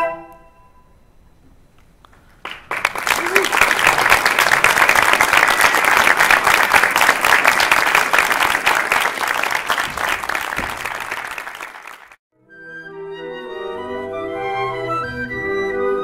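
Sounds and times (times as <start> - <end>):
flute choir playing: 0.0 - 0.9, 12.4 - 16.0
audience applauding: 2.3 - 12.2.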